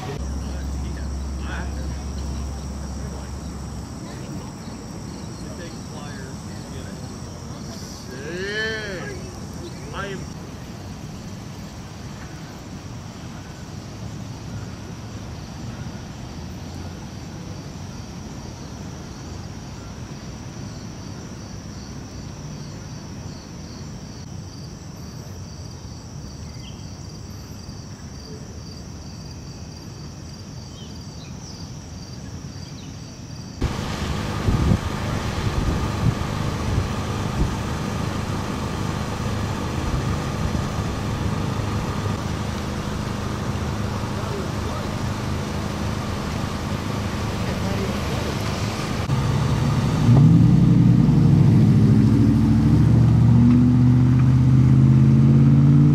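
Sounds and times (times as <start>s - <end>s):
low rumble: 0.0s - 4.9s
truck engine idling: 0.0s - 10.4s, 33.6s - 53.4s
insects chirping: 0.0s - 55.8s.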